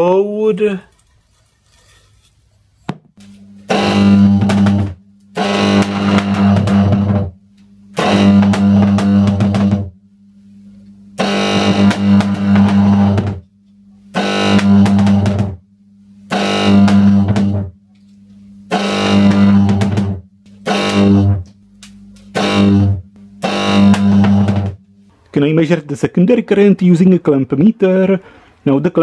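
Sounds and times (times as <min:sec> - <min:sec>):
faint electrical hum: 0:00.0 - 0:29.0
electric arcs buzzing and crackling: 0:03.2 - 0:09.9, 0:11.2 - 0:13.4, 0:14.1 - 0:15.6, 0:16.3 - 0:18.1, 0:18.7 - 0:25.1.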